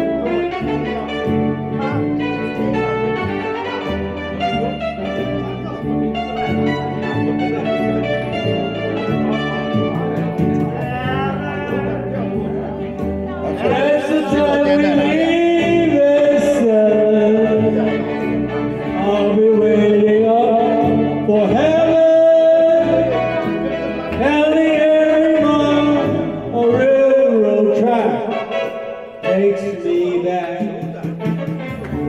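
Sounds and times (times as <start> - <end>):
karaoke backing track: 0.0 - 32.0
man singing into microphone: 10.5 - 31.4.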